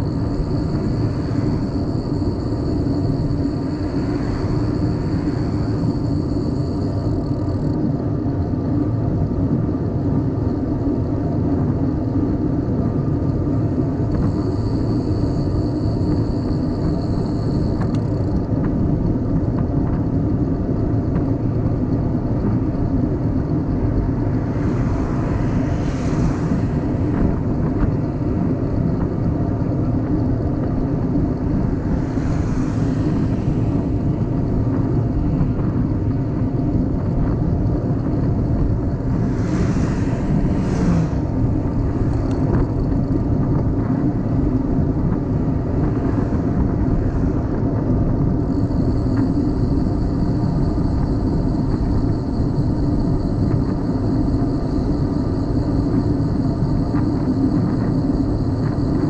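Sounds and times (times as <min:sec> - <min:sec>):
wind and road rumble: 0:00.0 - 0:59.0
hiss: 0:00.1 - 0:07.6, 0:24.2 - 0:29.0, 0:31.5 - 0:35.8, 0:38.5 - 0:43.0.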